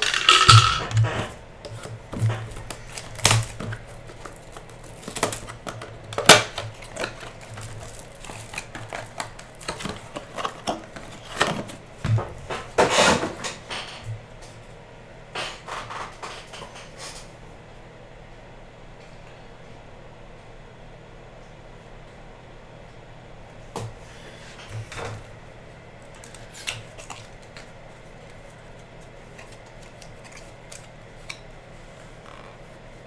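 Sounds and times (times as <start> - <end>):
wrapping rustling: 2.3 - 5.8, 6.5 - 11.8.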